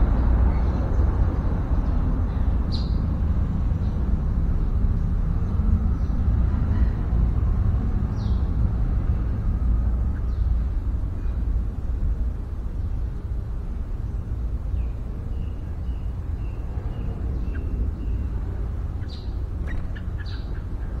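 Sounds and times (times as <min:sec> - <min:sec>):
low outdoor rumble: 0:00.0 - 0:21.0
bulbul calling: 0:15.3 - 0:18.4, 0:19.0 - 0:21.0.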